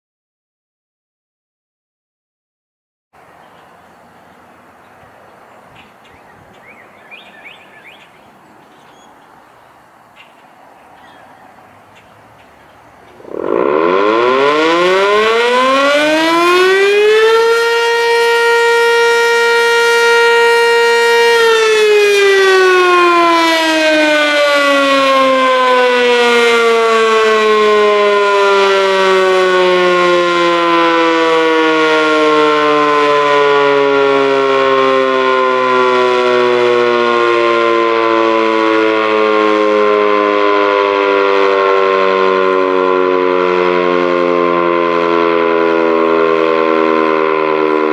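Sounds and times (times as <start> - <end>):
electromechanical siren wailing: 13.1 - 47.9.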